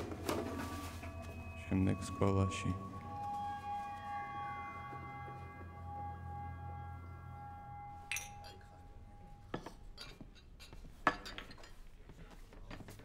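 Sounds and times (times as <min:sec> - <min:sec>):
held musical drone: 0:00.0 - 0:09.7
low pub room noise: 0:06.9 - 0:13.0
glasses and dishes clinking: 0:08.0 - 0:12.0.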